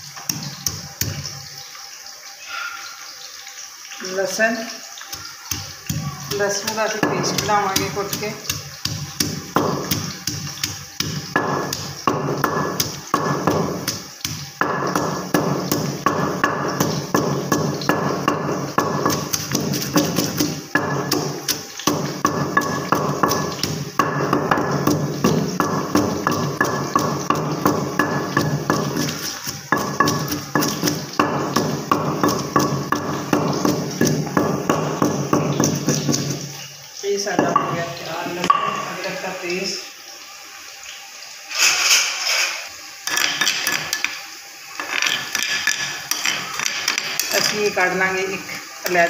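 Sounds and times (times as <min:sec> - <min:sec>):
pestle pounding in stone mortar: 0:05.1 - 0:36.5.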